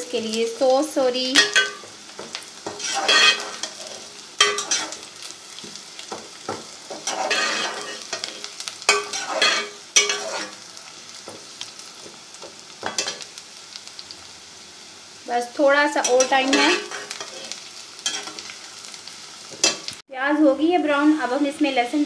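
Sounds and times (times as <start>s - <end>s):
onions sizzling in a pot: 0.0s - 22.0s
metal spoon scraping a pot: 2.7s - 5.0s, 6.9s - 10.6s.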